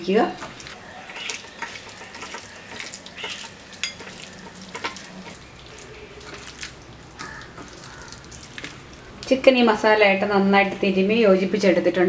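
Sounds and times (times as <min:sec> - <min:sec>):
wet squelching of kneaded chicken: 0:00.6 - 0:09.4.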